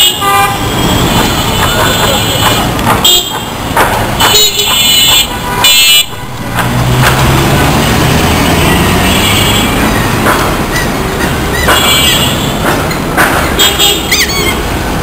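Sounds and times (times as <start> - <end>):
vehicle horns honking: 0.0 - 3.5, 4.2 - 10.0, 11.6 - 12.6, 13.5 - 14.6
passing car engines: 6.0 - 13.6.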